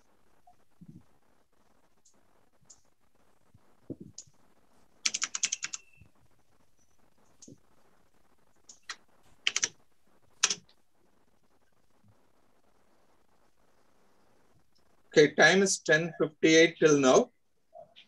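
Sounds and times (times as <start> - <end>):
computer keyboard typing: 5.0 - 6.0, 8.6 - 9.8, 10.4 - 10.8.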